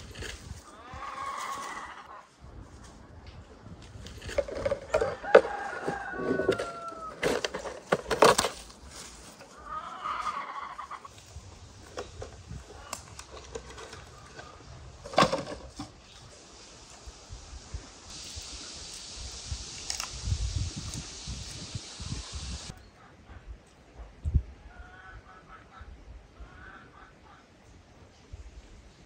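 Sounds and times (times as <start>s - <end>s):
rooster crowing: 4.9s - 7.3s.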